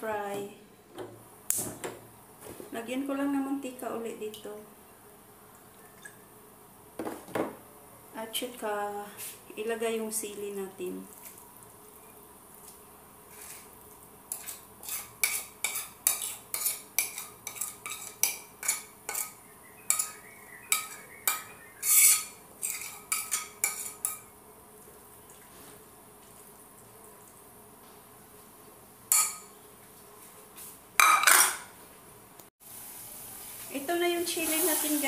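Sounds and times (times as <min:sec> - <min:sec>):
metal utensil scraping cookware: 0:14.3 - 0:24.2.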